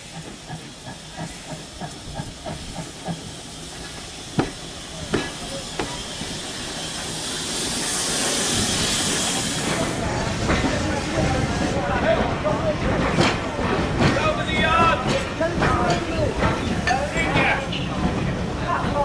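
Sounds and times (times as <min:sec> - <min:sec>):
steam locomotive exhaust chuffs: 0:00.0 - 0:10.0
loud steam hiss: 0:00.0 - 0:18.6.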